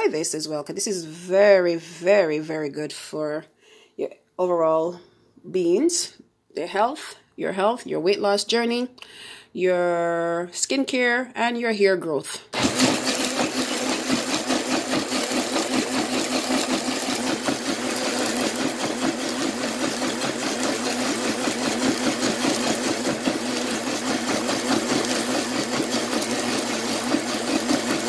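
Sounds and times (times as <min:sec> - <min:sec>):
blender running: 0:12.5 - 0:28.0.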